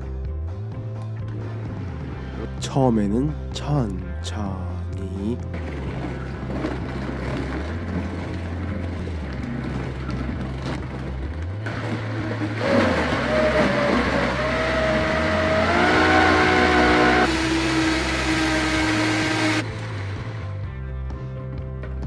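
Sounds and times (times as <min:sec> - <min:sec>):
blender motor churning frozen fruit: 0:11.7 - 0:19.6.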